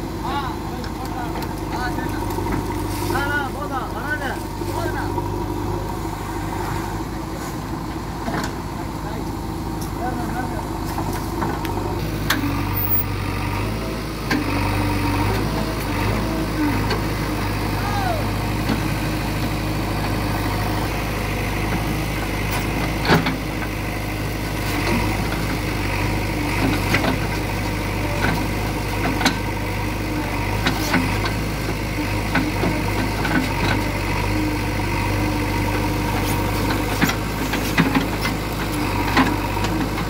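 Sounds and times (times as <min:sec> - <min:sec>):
diesel engine running: 0:00.0 - 0:40.0.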